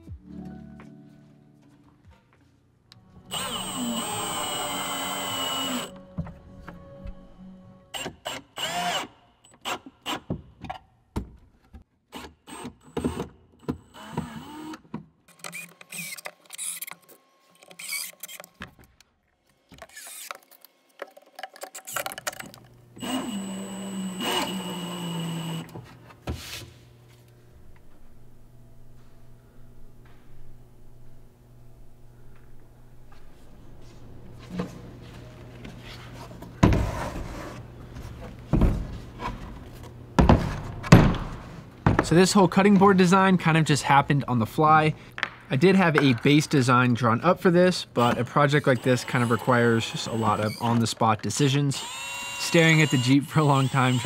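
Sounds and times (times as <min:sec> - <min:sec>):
cordless drill motor whine: 0:03.3 - 0:05.9, 0:15.4 - 0:17.0, 0:23.0 - 0:25.8, 0:48.0 - 0:50.6, 0:51.8 - 0:54.0.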